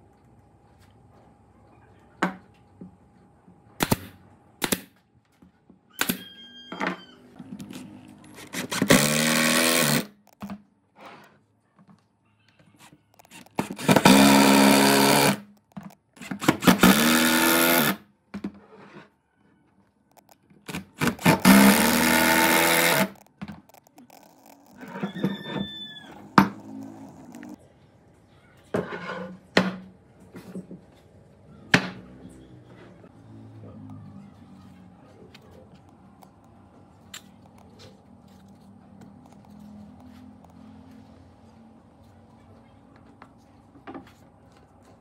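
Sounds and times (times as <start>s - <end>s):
impact driver driving screws: 8.4s - 10.4s, 13.2s - 18.0s, 20.2s - 25.5s.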